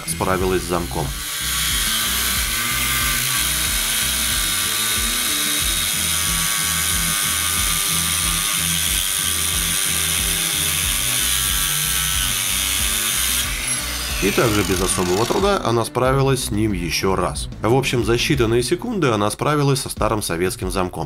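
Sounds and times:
angle grinder cutting steel: 0.0s - 15.6s.

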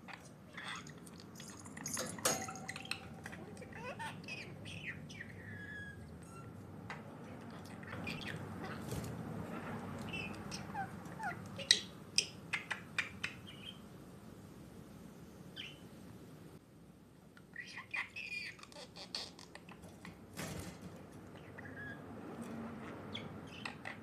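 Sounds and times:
budgerigar chattering and chirping: 2.7s - 6.5s, 7.8s - 13.8s, 17.6s - 19.8s, 22.8s - 24.0s.

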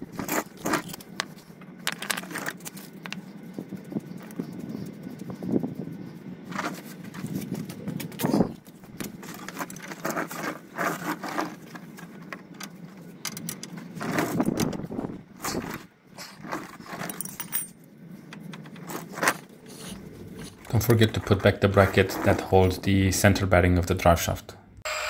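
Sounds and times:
metal hand tools clinking: 16.9s - 17.8s.

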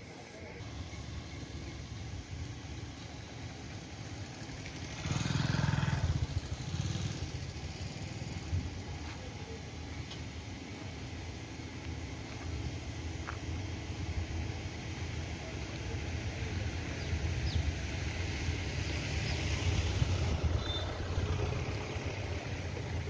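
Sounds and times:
engine idling: 0.0s - 23.0s
loud passing vehicle: 0.6s - 8.7s, 17.7s - 23.0s.

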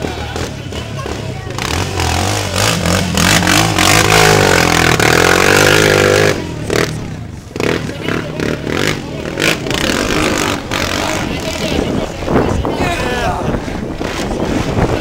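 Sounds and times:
engine revving: 0.0s - 12.3s.

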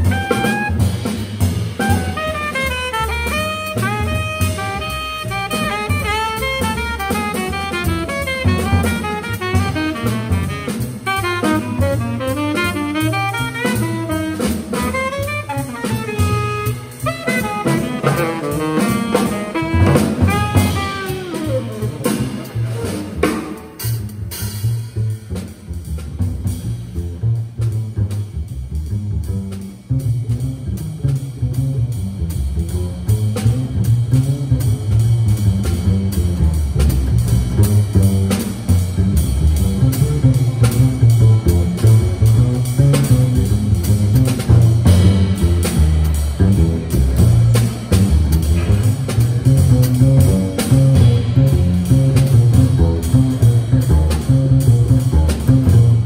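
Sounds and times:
tenor saxophone: 0.0s - 1.2s, 1.8s - 23.0s
drum kit: 0.0s - 56.0s
plucked double bass: 0.0s - 56.0s.

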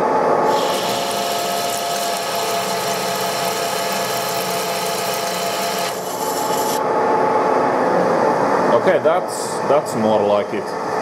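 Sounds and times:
lathe cutting metal hiss: 0.5s - 3.1s
lathe gear hum: 0.5s - 6.8s.

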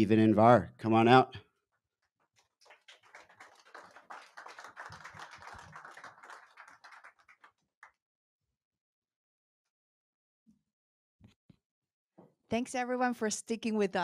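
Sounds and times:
audience applause: 2.6s - 7.6s.

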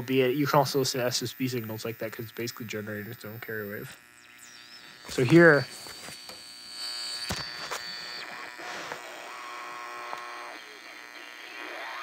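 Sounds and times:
radio buzz and static: 0.0s - 12.0s
radio receiver whistling: 4.1s - 12.0s.

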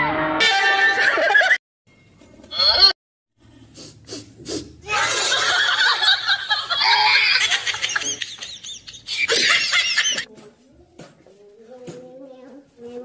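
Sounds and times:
high-pitched giggling laughter: 4.9s - 10.3s.

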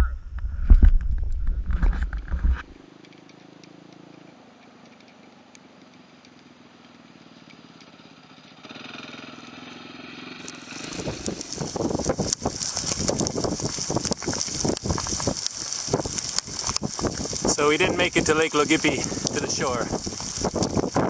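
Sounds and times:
rain: 10.4s - 21.0s
wind buffeting microphone: 10.4s - 21.0s.

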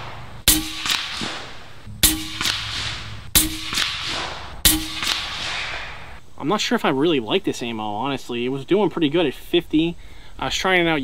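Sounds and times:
pellet striking target: 0.0s - 6.0s
air rifle shots: 0.0s - 6.2s.

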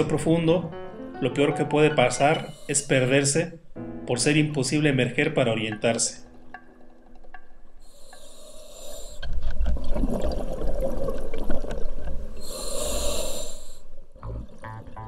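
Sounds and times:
regulator inhalation hiss: 2.3s - 3.1s, 7.8s - 9.2s, 12.4s - 14.0s
rumbling exhaled bubbles: 9.3s - 12.4s, 14.2s - 15.0s.

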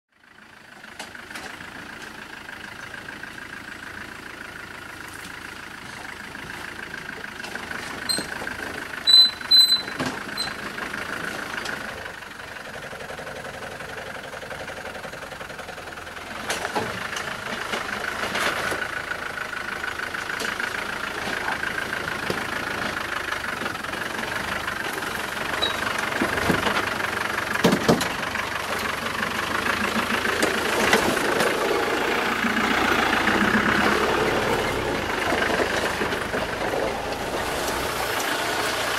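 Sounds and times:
car engine running at low speed: 0.1s - 38.9s
short high electronic beeps: 9.1s - 10.6s
knocks on rocky track: 27.6s - 28.2s.

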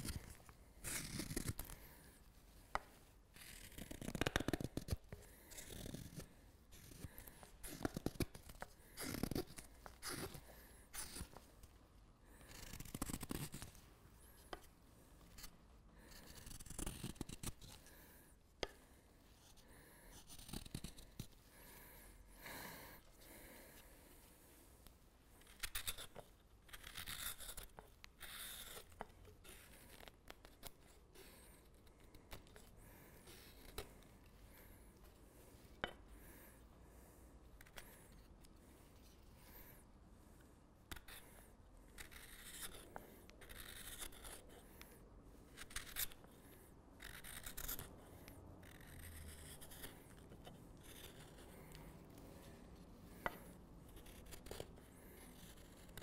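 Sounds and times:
knife shaving wood: 0.0s - 2.0s, 3.3s - 11.5s, 12.3s - 14.7s, 15.3s - 18.8s, 19.4s - 22.0s, 25.4s - 34.8s, 42.0s - 56.0s.

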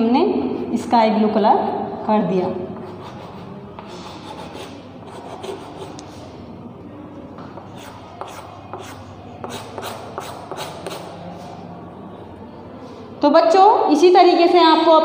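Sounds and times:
chalk scraping on chalkboard: 2.8s - 6.4s, 7.6s - 11.6s.

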